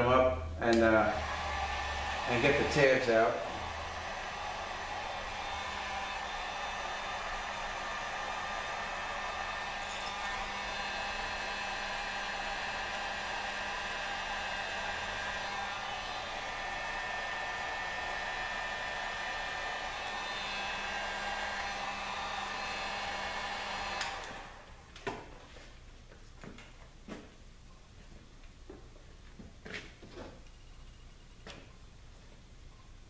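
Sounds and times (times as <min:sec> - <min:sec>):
heat gun fan humming: 0:00.6 - 0:25.4.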